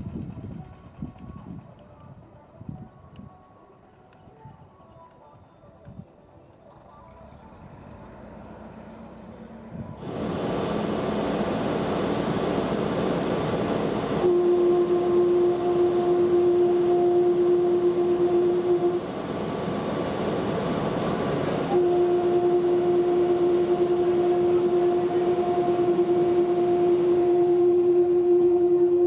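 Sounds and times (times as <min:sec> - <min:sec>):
moving railbus noise: 0:00.0 - 0:29.0
railbus horn blasts: 0:13.7 - 0:19.6, 0:20.8 - 0:29.0.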